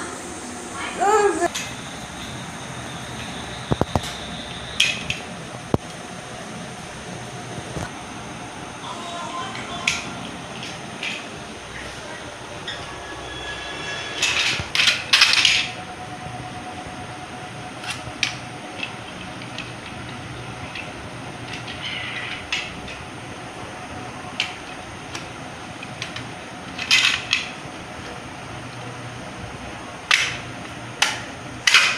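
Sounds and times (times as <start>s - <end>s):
toy cars clicking and clattering: 14.2s - 15.7s, 17.8s - 20.9s, 21.5s - 23.0s, 24.4s - 27.6s, 30.1s - 31.9s.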